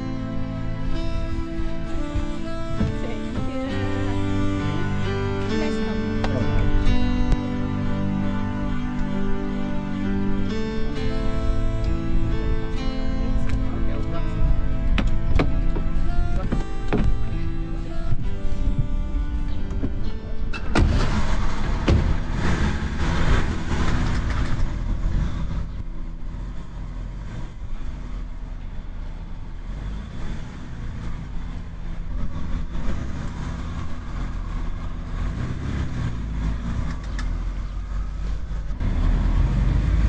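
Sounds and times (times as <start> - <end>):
car engine pulling away: 0.0 - 40.0
car door shutting: 2.6 - 3.9, 14.9 - 17.5, 19.6 - 22.6.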